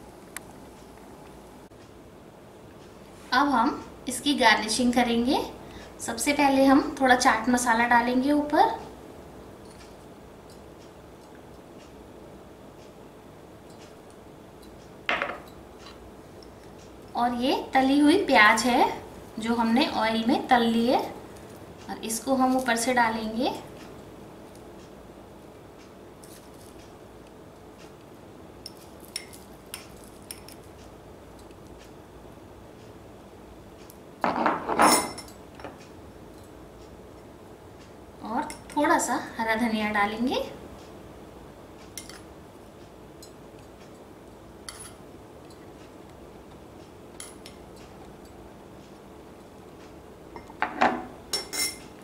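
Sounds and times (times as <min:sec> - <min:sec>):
low room hum: 0:00.0 - 0:52.0
metal spoon clinking on ceramic dish: 0:50.4 - 0:51.8
metal spoon clinking glass bowl: 0:51.3 - 0:51.8.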